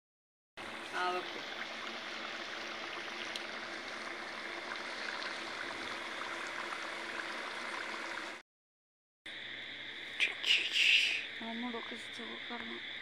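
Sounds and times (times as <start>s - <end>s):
dough sizzling in hot oil: 0.6s - 8.4s.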